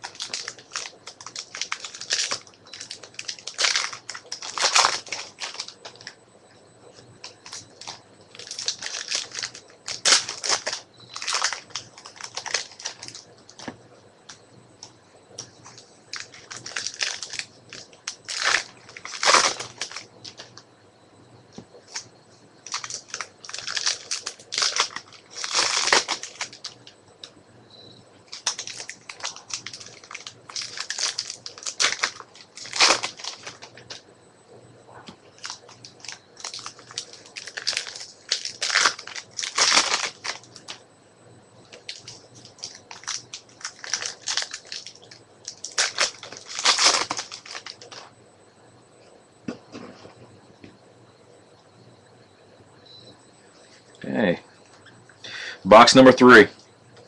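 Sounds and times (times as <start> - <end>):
foil wrappers crinkling and tearing: 0.0 - 6.2, 7.2 - 13.8, 15.4 - 20.6, 21.9 - 27.0, 28.3 - 34.0, 35.4 - 40.8, 41.7 - 48.1.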